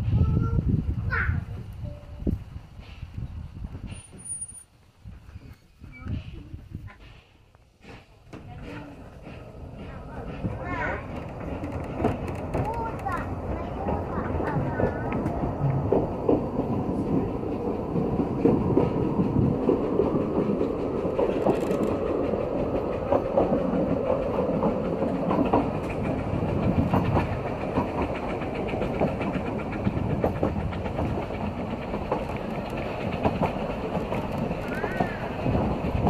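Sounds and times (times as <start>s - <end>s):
train wheels rumbling on track: 0.0s - 36.0s.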